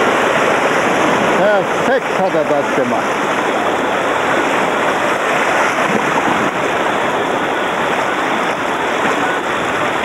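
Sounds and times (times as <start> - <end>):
water rushing over rapids: 0.0 - 10.0.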